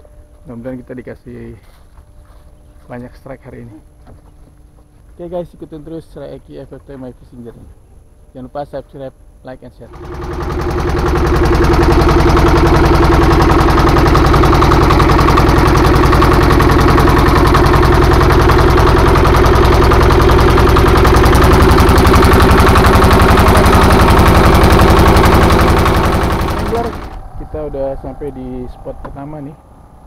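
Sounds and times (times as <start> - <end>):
boat engine pulsing: 9.9 - 30.0.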